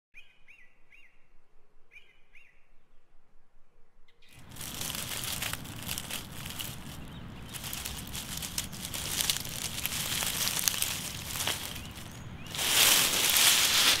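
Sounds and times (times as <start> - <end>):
bird chirping: 4.1 - 14.0
dry leaves rustling: 4.4 - 14.0.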